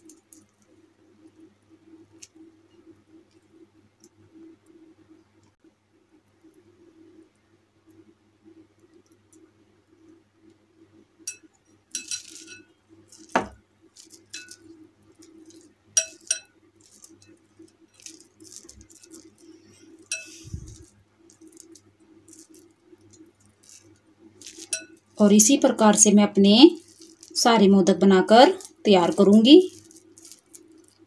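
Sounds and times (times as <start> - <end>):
faint steady hum: 0.0 - 31.0
glass bowl clinking: 11.3 - 14.6, 16.0 - 17.4, 20.1 - 20.9, 24.4 - 25.0.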